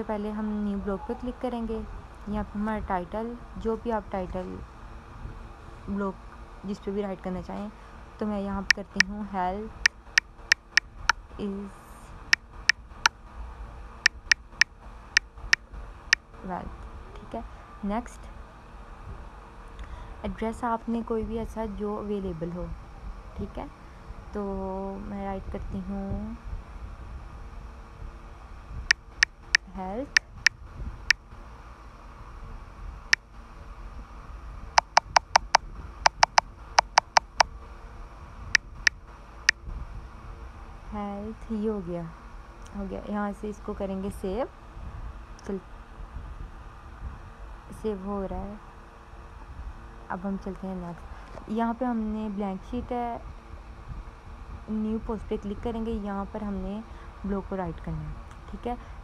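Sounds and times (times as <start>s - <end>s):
phone keyboard clicks: 14.1s - 14.6s, 34.8s - 37.4s.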